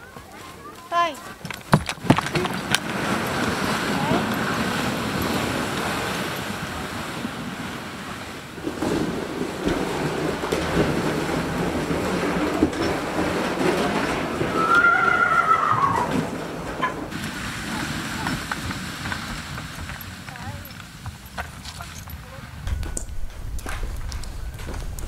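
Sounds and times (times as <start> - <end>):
sled scraping over snow: 0.0 - 25.0
snow crunching: 2.0 - 16.4, 17.0 - 25.0.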